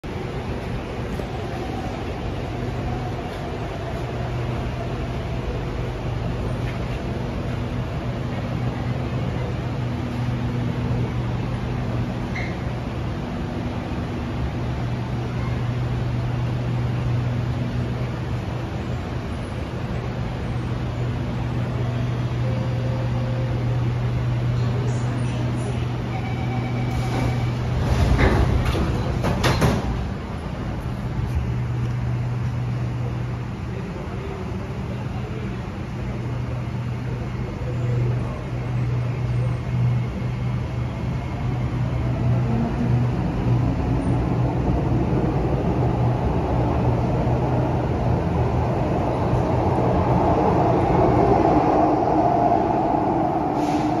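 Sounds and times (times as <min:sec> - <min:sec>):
train equipment humming: 0:00.0 - 0:54.0
doors sliding shut: 0:26.8 - 0:30.2.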